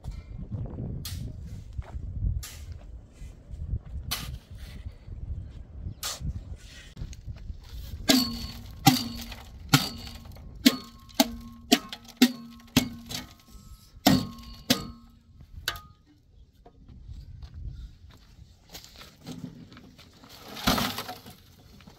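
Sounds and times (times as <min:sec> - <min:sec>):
shovel clanking on metal wheelbarrow: 0:08.0 - 0:16.0.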